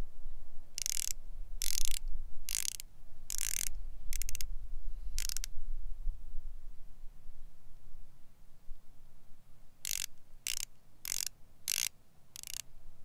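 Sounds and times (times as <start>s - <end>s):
watch bezel ratcheting clicks: 0.8s - 4.4s, 5.2s - 5.5s, 9.8s - 12.6s.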